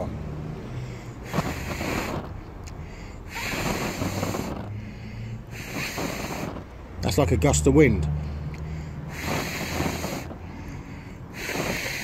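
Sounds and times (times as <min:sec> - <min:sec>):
person blowing at flame: 0:01.2 - 0:02.4, 0:03.3 - 0:04.8, 0:05.4 - 0:06.8, 0:09.0 - 0:10.5, 0:11.3 - 0:12.0.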